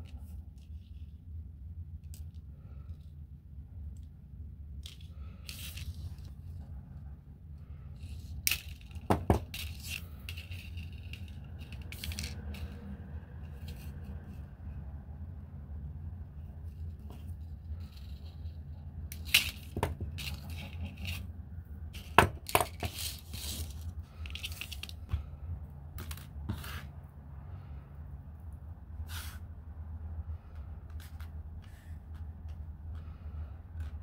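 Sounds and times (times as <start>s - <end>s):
wire clicking and scraping: 8.0s - 14.5s.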